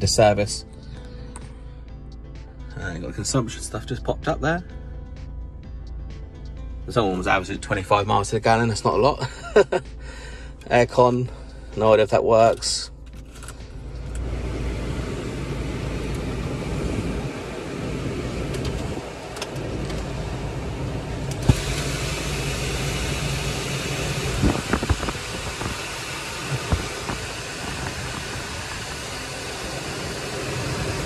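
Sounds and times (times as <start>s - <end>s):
car engine idling: 0.0s - 31.0s
blower fan rushing air: 13.8s - 31.0s.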